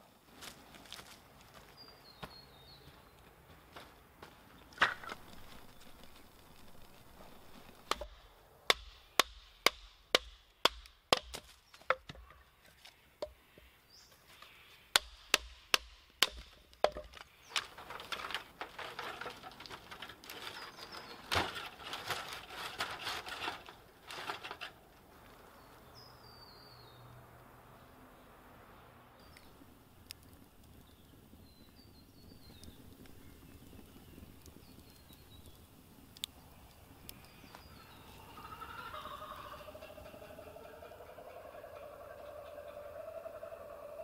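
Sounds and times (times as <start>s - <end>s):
clattering sticks: 16.2s - 24.8s.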